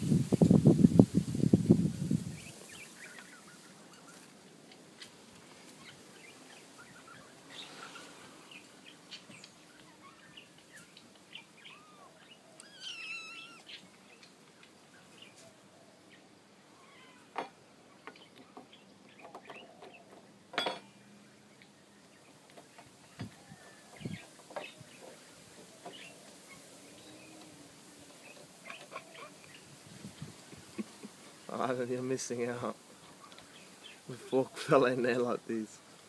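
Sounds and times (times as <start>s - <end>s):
birds chirping and calling: 2.2s - 35.7s
bird warbling call: 5.8s - 14.3s.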